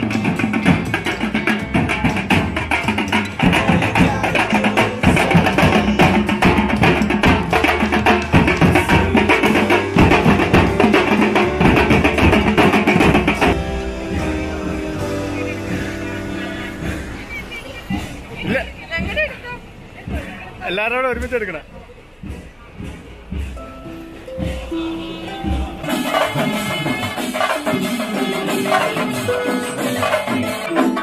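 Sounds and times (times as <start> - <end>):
marching drums playing fast rhythm: 0.0 - 31.0
quieter music: 23.3 - 26.1.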